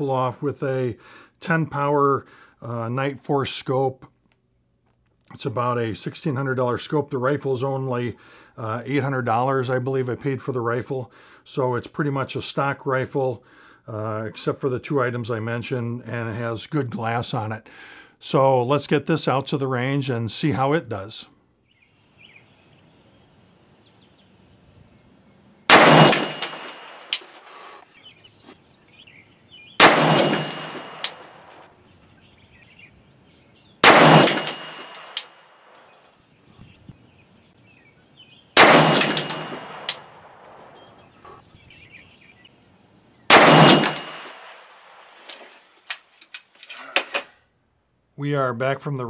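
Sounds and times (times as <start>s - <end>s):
rifle shots: 25.7s - 27.2s, 29.8s - 31.6s, 33.8s - 35.4s, 38.6s - 40.7s, 43.3s - 44.6s.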